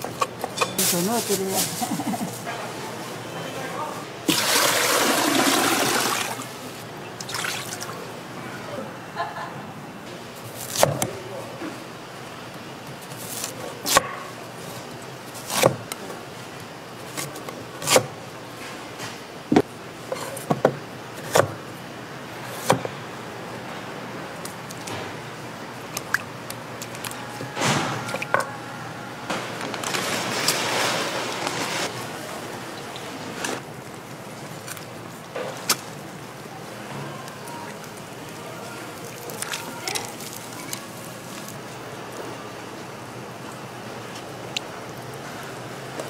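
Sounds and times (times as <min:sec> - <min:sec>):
broth sloshing in a pot: 0:04.2 - 0:08.1.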